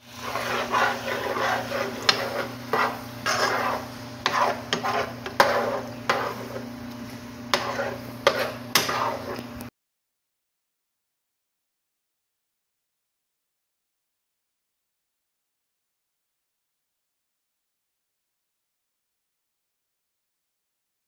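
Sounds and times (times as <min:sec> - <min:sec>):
spatula scraping in skillet: 0:00.0 - 0:09.7
steady low hum: 0:00.0 - 0:09.7.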